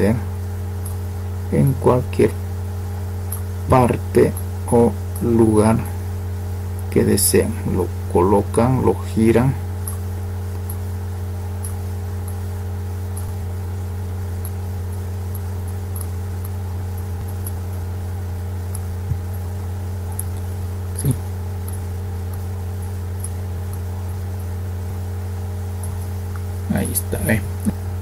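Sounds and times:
low electrical hum: 0:00.0 - 0:28.0
computer mouse clicks: 0:11.6 - 0:12.4, 0:15.3 - 0:17.8.

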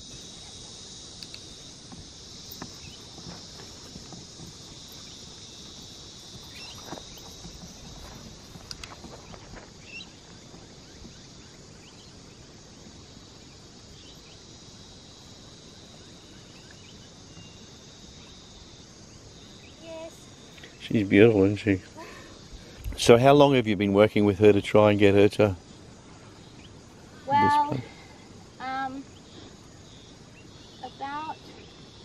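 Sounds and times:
high-pitched insect chorus: 0:00.0 - 0:32.0
hoof and footstep thumps on grass: 0:01.9 - 0:11.3.

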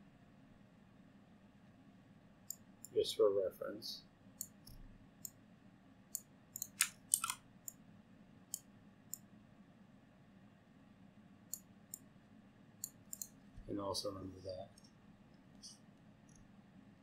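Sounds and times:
faint room hum: 0:00.0 - 0:17.0
computer mouse clicks: 0:02.5 - 0:03.0, 0:04.4 - 0:05.4, 0:06.1 - 0:07.8, 0:08.5 - 0:09.3, 0:11.5 - 0:12.1, 0:12.8 - 0:13.7.

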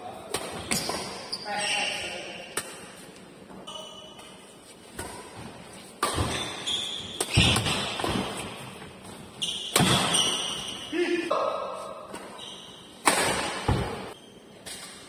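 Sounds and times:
racket hitting shuttlecock: 0:02.5 - 0:03.0, 0:05.0 - 0:08.8, 0:09.6 - 0:10.7, 0:13.0 - 0:14.1.

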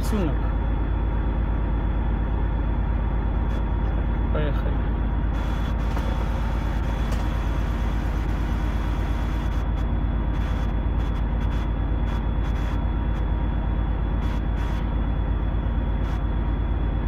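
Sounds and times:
truck diesel engine running: 0:00.0 - 0:17.0.

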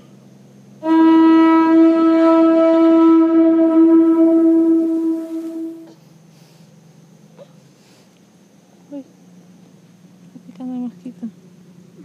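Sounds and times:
conch shell trumpet note: 0:00.8 - 0:05.9.

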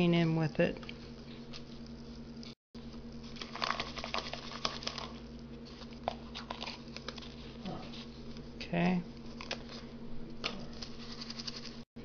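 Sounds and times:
fingers stirring cardboard crumbs: 0:03.2 - 0:09.9.

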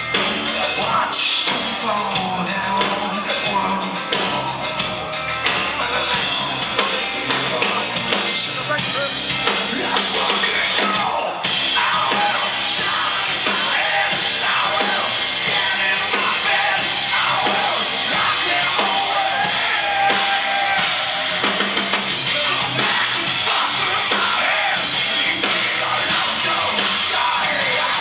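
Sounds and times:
drum kit: 0:00.0 - 0:28.0
electric guitars: 0:00.0 - 0:28.0
person singing: 0:00.5 - 0:04.8, 0:09.6 - 0:21.4.

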